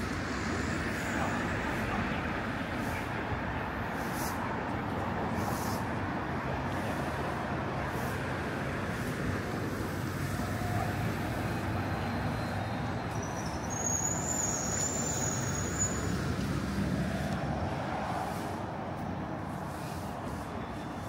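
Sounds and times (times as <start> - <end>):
rumble of passing cars: 0.0 - 21.0
vehicle passing by: 15.6 - 20.6.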